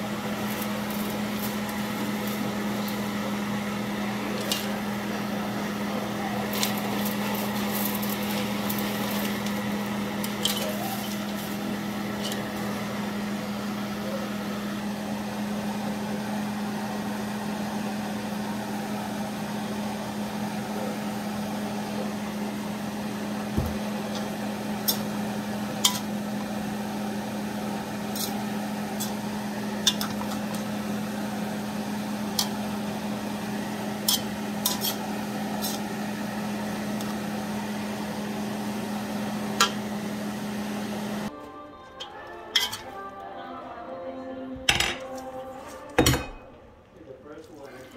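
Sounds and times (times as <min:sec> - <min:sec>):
pan sizzling: 0:00.0 - 0:13.9, 0:23.0 - 0:41.4
metal tongs clacking on wok: 0:25.8 - 0:26.1, 0:29.8 - 0:30.4, 0:32.3 - 0:32.6, 0:34.0 - 0:35.0, 0:42.0 - 0:42.9.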